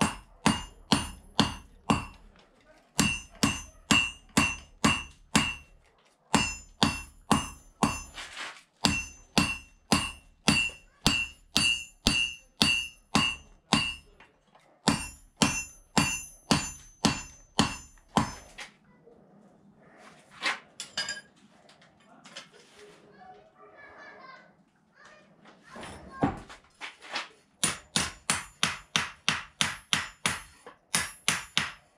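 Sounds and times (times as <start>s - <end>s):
hammer ringing on anvil: 0.0s - 2.3s, 3.0s - 8.2s, 8.8s - 14.2s, 14.9s - 18.6s, 27.6s - 31.9s.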